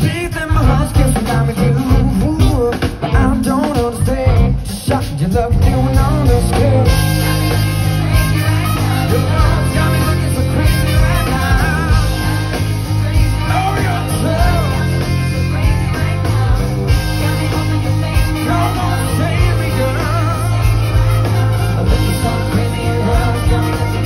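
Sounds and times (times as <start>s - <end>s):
live pop band playing: 0.0s - 24.0s
man singing: 0.0s - 24.0s
horn section: 5.6s - 24.0s.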